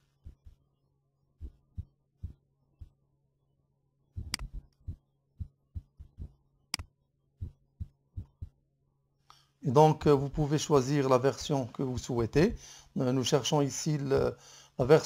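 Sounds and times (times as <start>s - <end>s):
mouse clicks: 4.2s - 4.6s
steady low hum: 7.4s - 8.6s.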